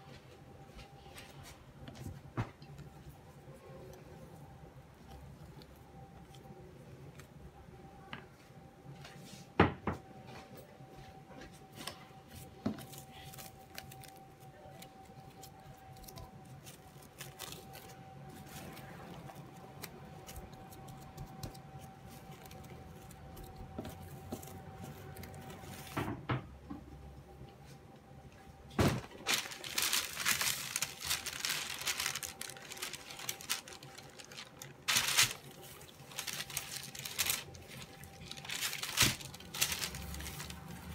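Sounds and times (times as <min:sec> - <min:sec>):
cling film and paper crinkling: 0:10.3 - 0:26.1, 0:28.7 - 0:40.9.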